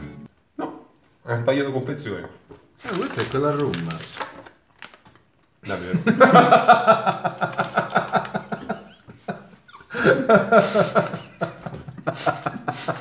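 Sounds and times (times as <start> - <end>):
men laughing hard: 5.9 - 13.0.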